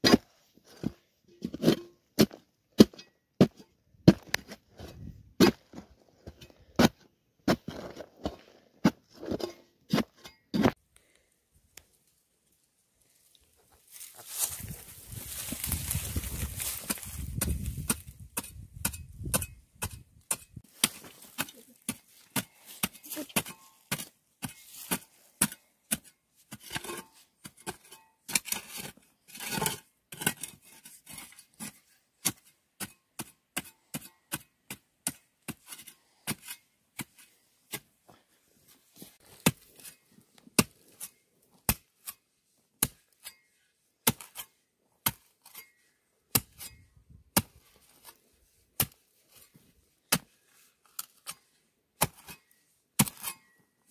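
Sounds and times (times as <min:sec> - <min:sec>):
spade chopping into dry soil: 0:00.0 - 0:10.8, 0:15.3 - 0:37.9, 0:39.2 - 0:42.2, 0:42.8 - 0:43.4, 0:44.0 - 0:48.2, 0:48.8 - 0:53.9
spade scraping soil: 0:00.0 - 0:10.8, 0:13.8 - 0:53.9.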